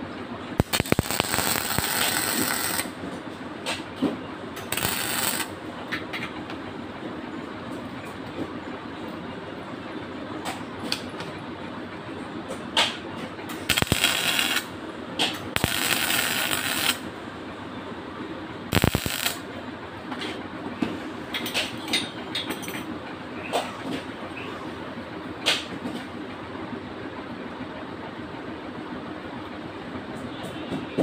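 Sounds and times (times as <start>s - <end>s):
steady background hum: 0.0s - 31.0s
arc welding hissing and crackling: 0.6s - 3.0s, 4.6s - 5.6s, 13.6s - 14.8s, 15.5s - 17.1s, 18.7s - 19.5s.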